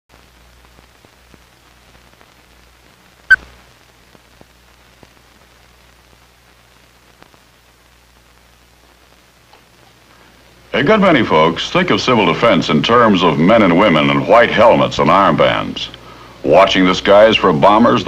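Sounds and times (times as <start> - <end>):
film crackles and pop: 0.1 - 13.0
film soundtrack hiss and hum: 0.1 - 18.0.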